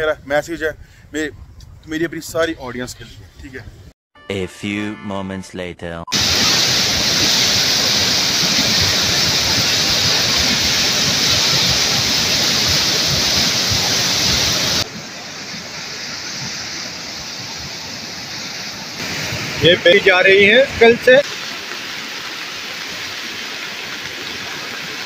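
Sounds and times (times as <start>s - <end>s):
river torrent rushing: 6.2s - 21.3s.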